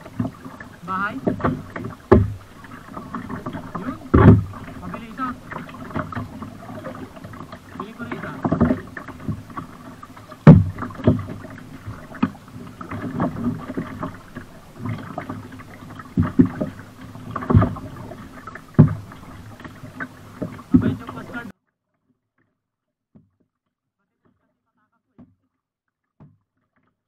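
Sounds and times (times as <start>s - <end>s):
paddle splashing in water: 0.0s - 21.5s
sharp knocks: 1.2s - 7.4s, 8.1s - 19.5s.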